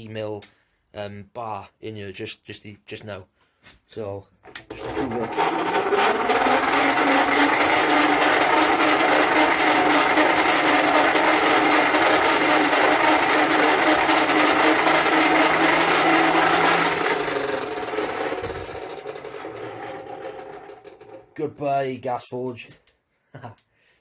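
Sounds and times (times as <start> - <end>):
forge blower humming: 4.6 - 21.4.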